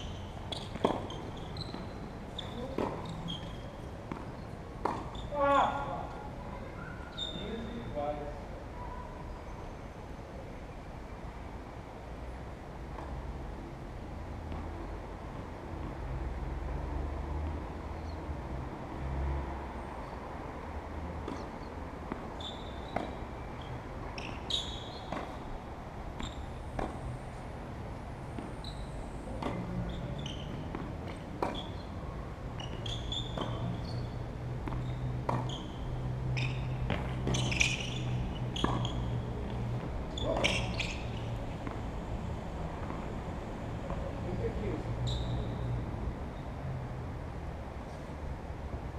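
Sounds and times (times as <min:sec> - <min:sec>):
tennis balls struck by rackets: 0:00.1 - 0:05.8, 0:21.2 - 0:27.4, 0:28.2 - 0:41.9.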